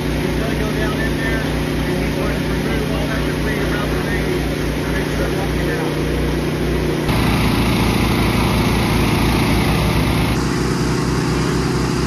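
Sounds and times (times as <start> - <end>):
gasoline water pumps running: 0.0 - 12.0.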